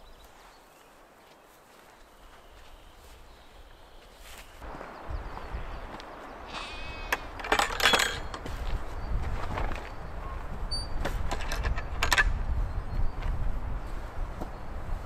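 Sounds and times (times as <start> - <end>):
wind rumble on microphone: 4.6 - 15.0
gate latch clinking and knocking: 7.4 - 8.4, 10.7 - 12.3.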